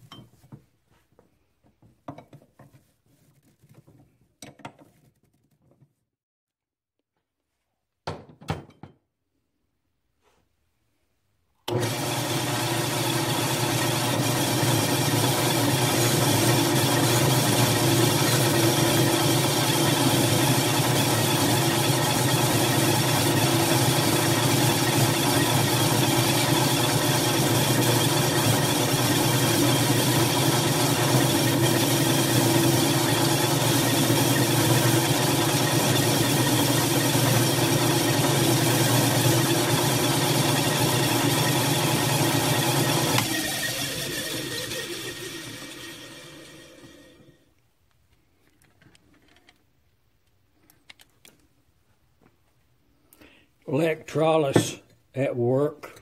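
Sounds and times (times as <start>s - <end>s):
drill press with brush wheel: 11.7s - 47.4s.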